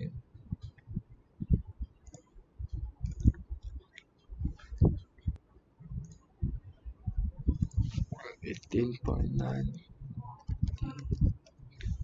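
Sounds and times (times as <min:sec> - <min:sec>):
computer keyboard and mouse clicks: 0:02.0 - 0:02.3, 0:03.0 - 0:04.9.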